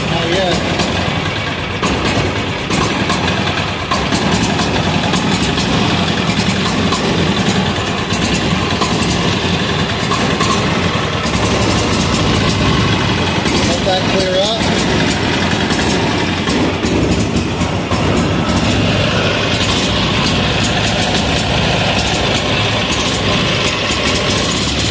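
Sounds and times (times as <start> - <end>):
diesel engine knocking: 0.0 - 24.9.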